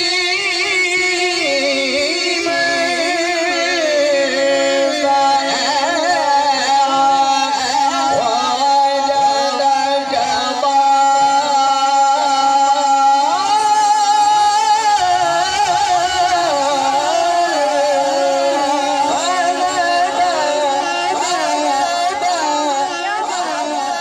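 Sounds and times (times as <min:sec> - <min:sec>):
man chanting into a microphone: 0:00.0 - 0:24.0.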